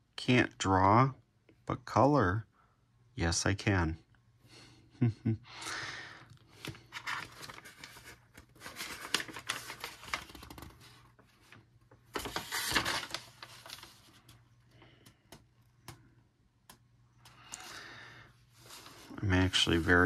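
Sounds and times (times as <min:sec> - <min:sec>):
paper rustling and flapping: 0:06.5 - 0:16.0.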